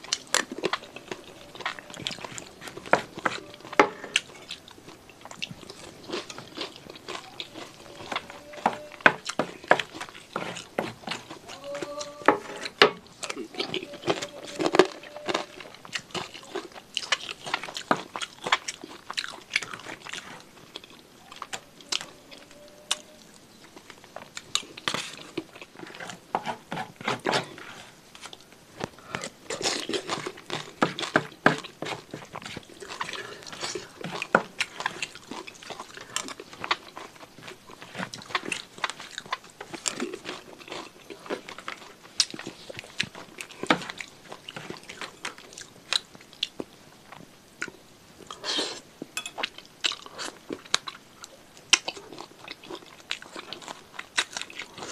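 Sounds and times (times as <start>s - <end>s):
wet chewing and crunching: 0.0s - 54.9s.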